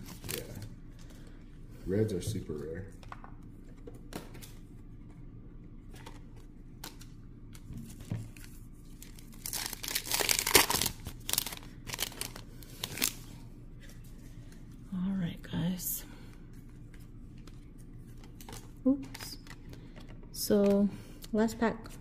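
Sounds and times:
foil wrapper tearing and crinkling: 0:08.9 - 0:13.2.

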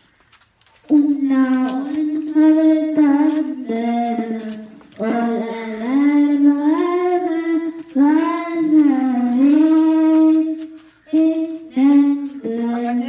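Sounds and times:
girl singing into a microphone: 0:00.9 - 0:13.0.

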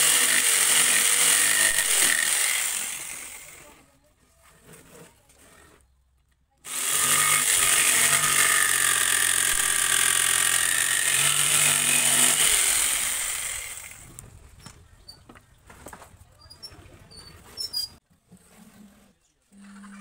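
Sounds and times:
jigsaw cutting wood: 0:00.0 - 0:03.8, 0:06.7 - 0:14.2.

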